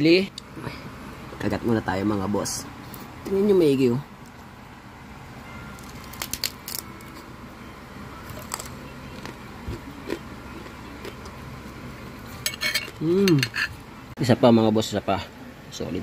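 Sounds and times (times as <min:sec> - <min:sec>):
crunching of crispy food: 0:05.7 - 0:07.3, 0:08.2 - 0:12.4.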